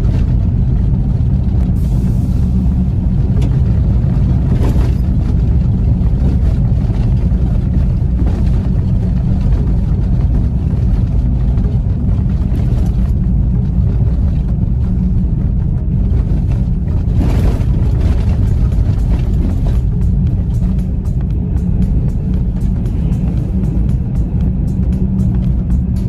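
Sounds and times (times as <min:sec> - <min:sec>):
car interior driving rumble: 0:00.0 - 0:26.0.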